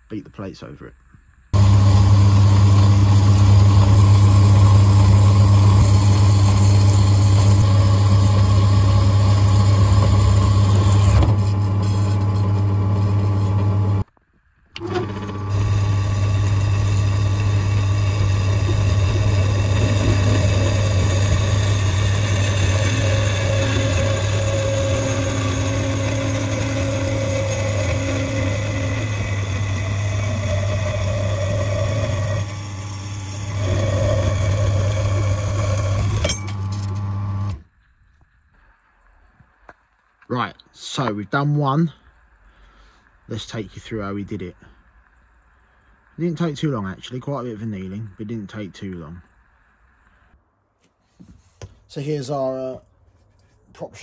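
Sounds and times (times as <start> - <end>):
bandsaw cutting steel: 1.6 - 14.0, 14.8 - 37.6.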